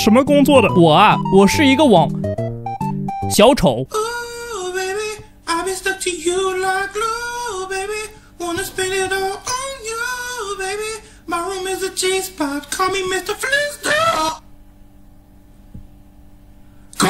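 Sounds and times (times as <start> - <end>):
man singing in strained voice: 3.9 - 14.4.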